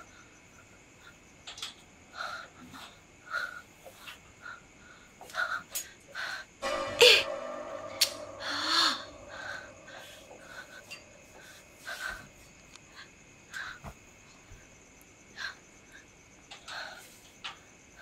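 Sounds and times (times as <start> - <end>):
faint high-pitched tone: 6.6 - 11.7.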